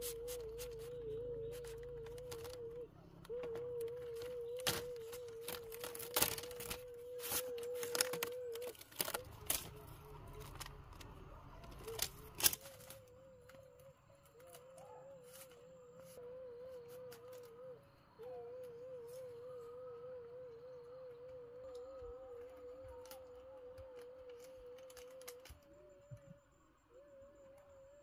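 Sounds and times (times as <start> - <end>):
bamboo strips clicking and clattering: 0.0 - 15.6, 21.6 - 26.2.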